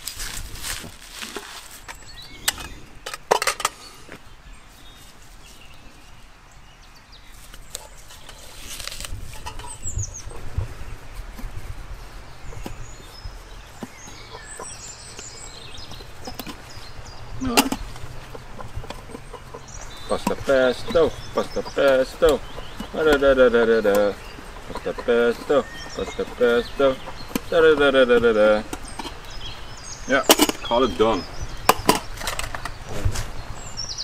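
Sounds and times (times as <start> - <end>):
faint bird chirps: 9.5 - 34.0.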